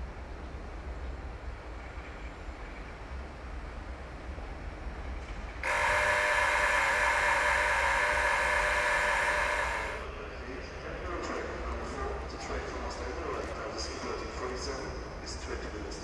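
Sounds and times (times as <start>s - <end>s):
shrill train horn: 5.6s - 10.1s.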